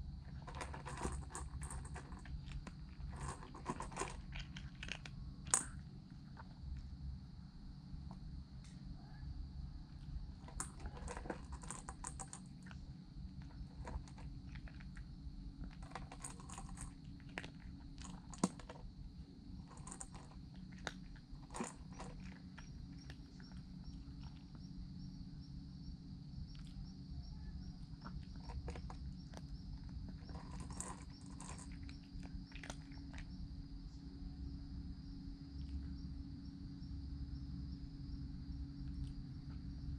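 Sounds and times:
cat crunching food: 0:00.3 - 0:06.6, 0:10.4 - 0:24.6, 0:28.0 - 0:33.4.

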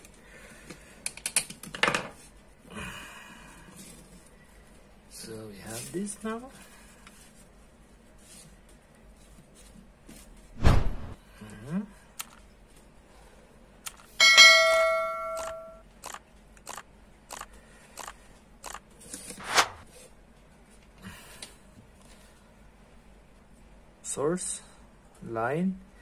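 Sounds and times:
bell-like ding: 0:14.2 - 0:15.8
evenly spaced clicks: 0:15.4 - 0:18.8
swoosh: 0:19.4 - 0:19.9.

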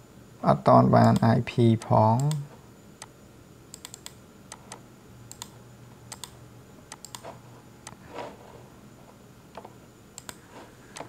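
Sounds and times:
mouse buttons clicking: 0:06.1 - 0:08.0, 0:10.2 - 0:11.0
soft brushing: 0:07.2 - 0:09.8, 0:10.4 - 0:10.9.

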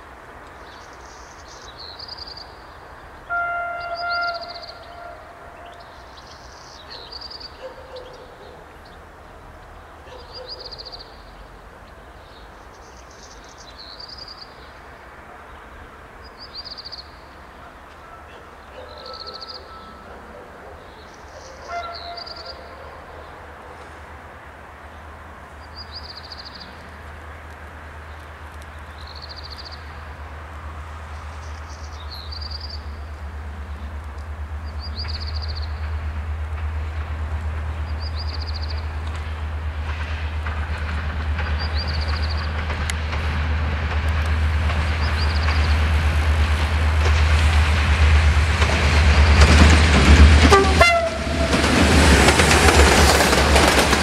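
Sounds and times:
horn note: 0:03.3 - 0:05.8, 0:50.4 - 0:51.6
diesel locomotive rumble: 0:21.1 - 0:54.0.

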